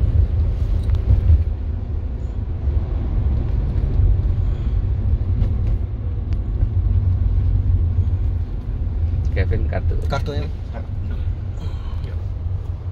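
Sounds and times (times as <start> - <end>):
car interior engine rumble: 0.0 - 12.9
tyre road noise: 0.0 - 12.9.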